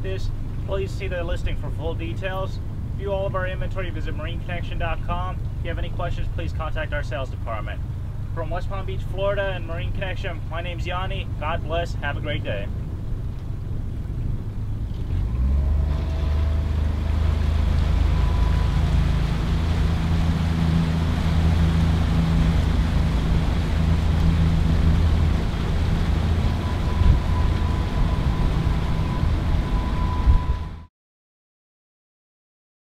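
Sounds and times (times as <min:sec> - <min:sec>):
wind and water noise: 0:00.0 - 0:30.9
outboard motor running: 0:07.4 - 0:30.8.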